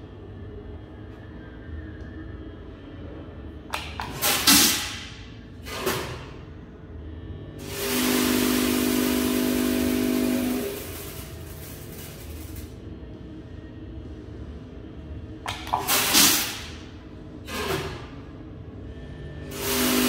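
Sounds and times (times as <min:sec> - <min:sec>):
coffee filling machine humming: 0:07.2 - 0:14.0, 0:19.0 - 0:20.0.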